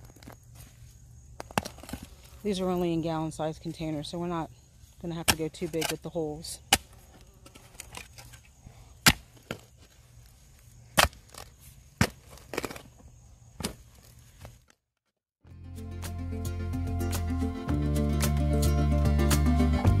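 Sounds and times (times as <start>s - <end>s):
spade chopping into soil: 5.1s - 7.0s, 9.0s - 9.7s, 11.0s - 12.8s.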